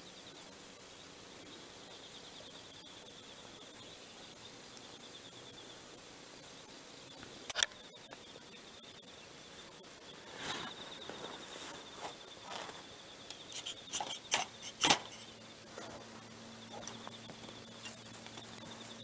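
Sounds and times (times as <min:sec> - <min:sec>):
sharp click: 0:07.5 - 0:07.8, 0:13.6 - 0:15.3
fire starter scraping strikes: 0:13.3 - 0:15.4.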